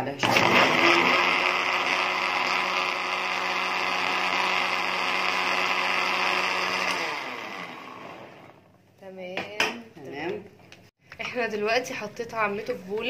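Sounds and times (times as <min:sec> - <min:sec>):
blender motor whirring: 0:00.2 - 0:08.7.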